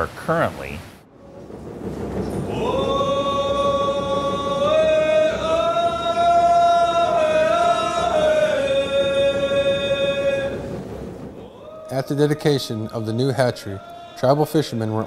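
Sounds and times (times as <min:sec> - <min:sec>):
men chanting in unison: 0:02.5 - 0:10.8, 0:11.4 - 0:15.0.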